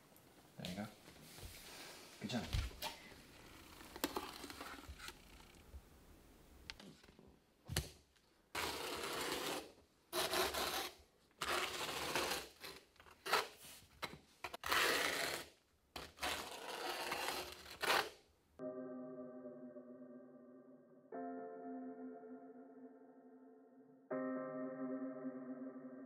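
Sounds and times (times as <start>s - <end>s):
trowel scraping mortar: 14.5s - 18.1s.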